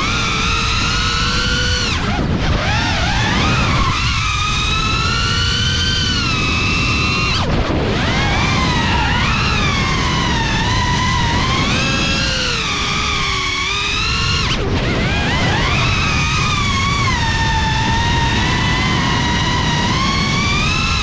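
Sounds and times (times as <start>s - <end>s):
drone motors whining: 0.0s - 21.0s.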